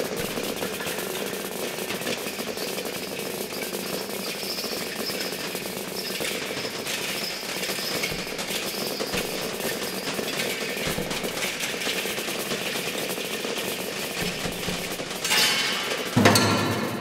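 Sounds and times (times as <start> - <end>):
rapid drum stick strokes: 0.0 - 16.2.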